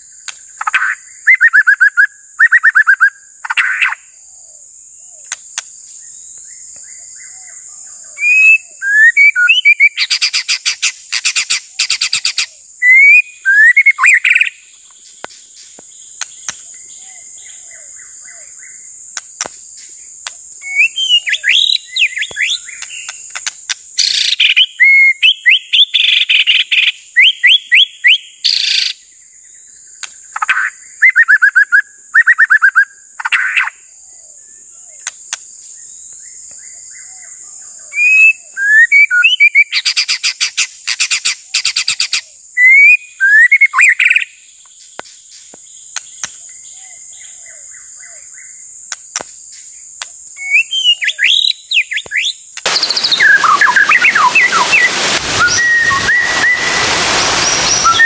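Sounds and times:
bird singing varied phrases: 0.0 - 5.4, 6.0 - 18.9, 20.6 - 23.4, 24.0 - 35.1, 35.8 - 40.2, 41.5 - 48.6, 50.4 - 56.8
steady high-pitched tone: 52.7 - 58.0.

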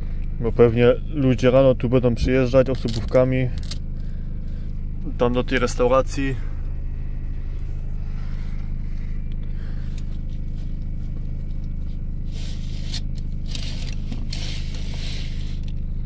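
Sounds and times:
low vehicle hum: 0.0 - 16.0.

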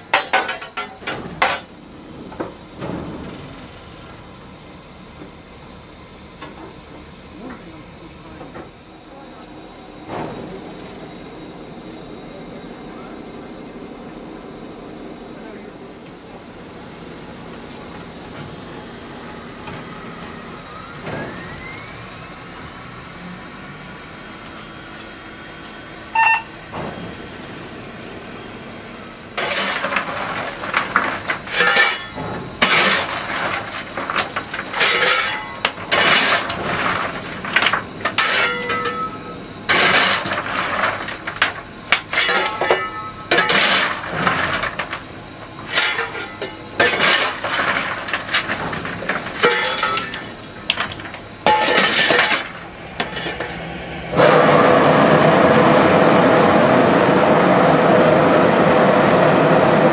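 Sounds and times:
loud steady steam hiss: 0.0 - 59.9
steel scoop scraping coal: 29.3 - 55.8.

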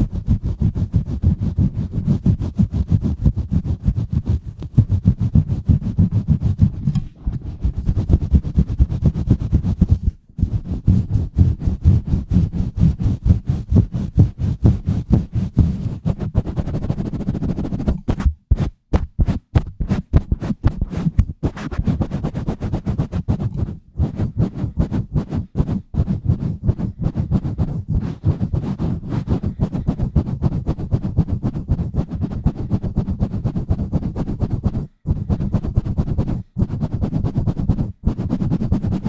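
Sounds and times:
fingers squeezing foam windscreen: 0.0 - 39.0.

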